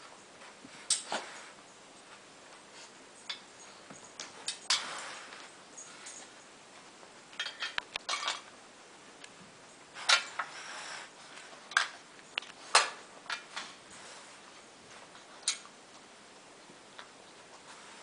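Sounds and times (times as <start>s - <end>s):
metal muffin tin clinking: 7.4s - 8.5s.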